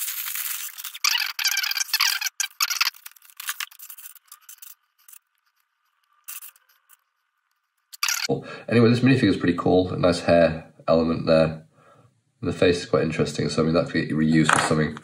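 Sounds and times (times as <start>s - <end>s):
plastic pieces rattling: 0.0s - 7.0s.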